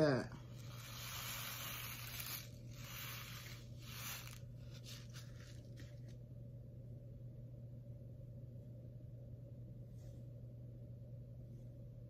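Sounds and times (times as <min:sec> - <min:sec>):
low hum: 0:00.0 - 0:12.0
paper packet rustling: 0:03.4 - 0:06.2.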